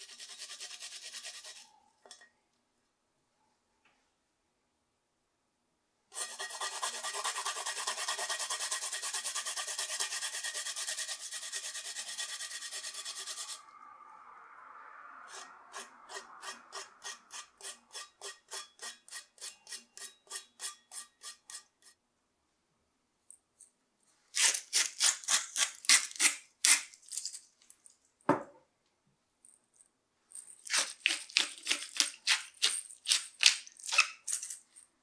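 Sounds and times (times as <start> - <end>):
rough rasping scrape: 6.2 - 13.6, 15.2 - 22.0.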